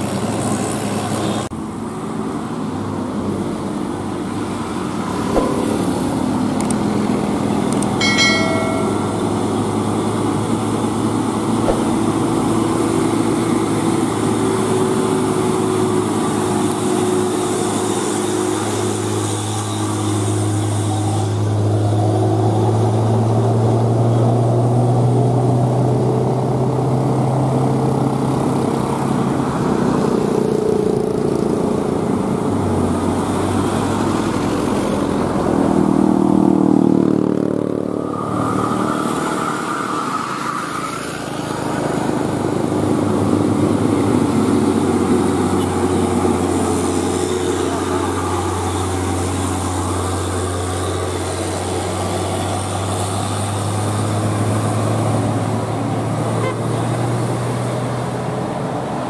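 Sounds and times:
diesel truck engines passing: 0.0s - 59.0s
road traffic: 0.0s - 59.0s.

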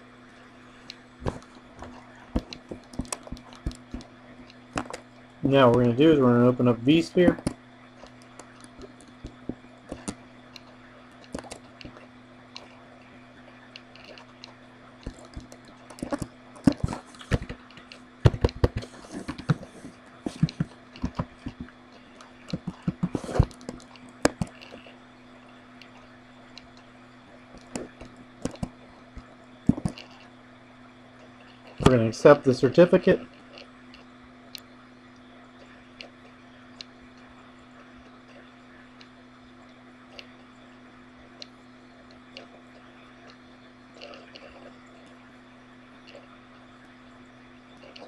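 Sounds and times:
steady low hum: 0.0s - 48.0s
computer mouse clicks: 7.4s - 12.8s, 13.7s - 25.0s, 27.6s - 30.3s
keyboard typing: 22.4s - 24.9s, 27.6s - 28.8s, 29.7s - 30.2s.

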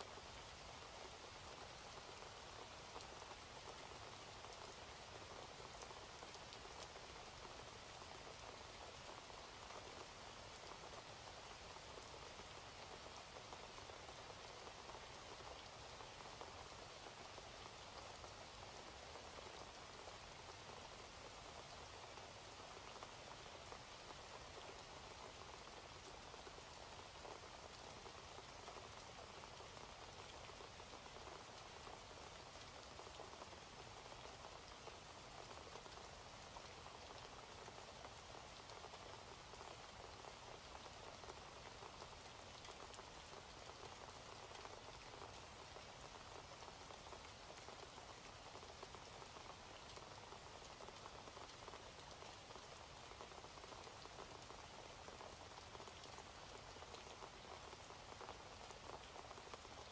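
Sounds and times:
faint steady rain: 0.0s - 59.9s
rain drop ticks: 22.7s - 59.9s.

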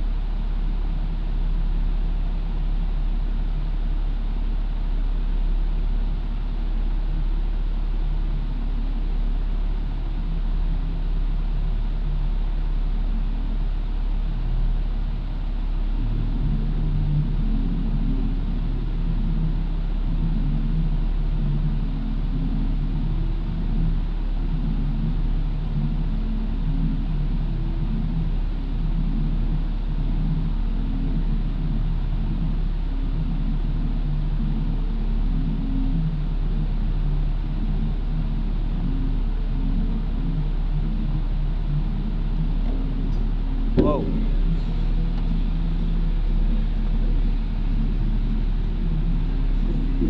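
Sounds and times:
engine idling exhaust rumble: 0.0s - 50.0s.

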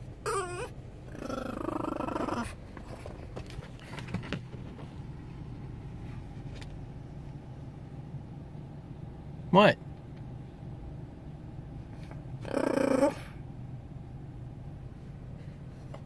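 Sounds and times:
dog howling and yelping: 0.2s - 2.6s, 12.4s - 13.4s
dog whimpering: 0.2s - 2.6s, 12.4s - 13.4s.

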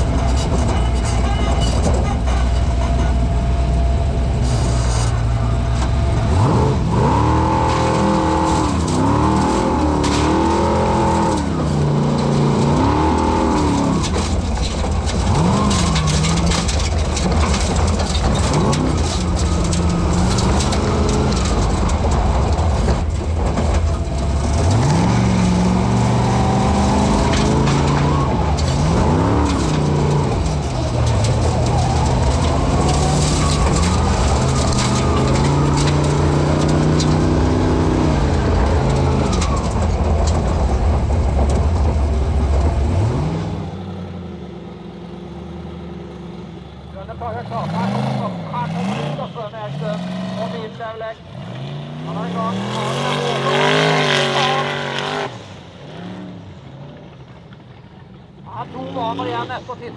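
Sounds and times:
car engine revving: 0.0s - 59.9s
dirt and stones clattering on car: 7.0s - 43.8s.

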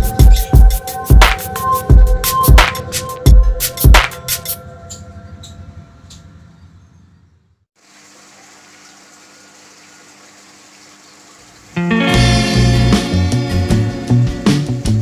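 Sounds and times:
intro music: 0.0s - 5.8s, 11.8s - 15.0s
aquarium water rushing: 7.8s - 12.1s.

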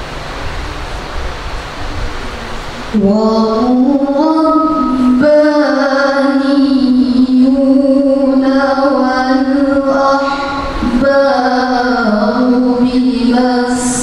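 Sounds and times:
woman reciting melodically: 2.9s - 14.0s.

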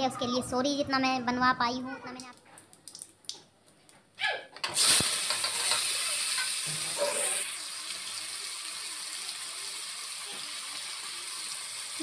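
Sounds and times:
tomatoes sizzling in hot oil: 4.7s - 12.0s.

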